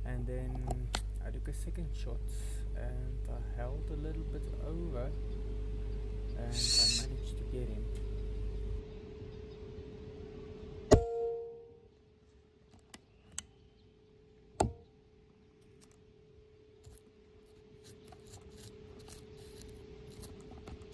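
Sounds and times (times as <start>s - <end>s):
faint steady hum: 0.0s - 20.9s
light clicks: 0.5s - 1.3s.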